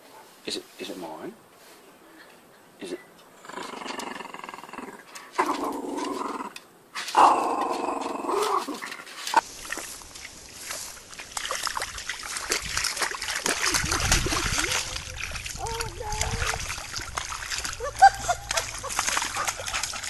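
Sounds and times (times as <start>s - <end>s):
small dog growling: 3.4s - 6.6s
dog splashing in muddy puddle: 8.4s - 20.0s.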